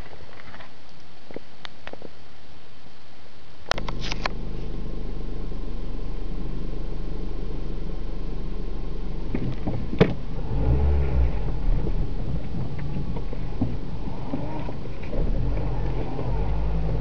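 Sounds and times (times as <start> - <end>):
steady hiss: 0.0 - 17.0
diesel engine running: 3.8 - 17.0.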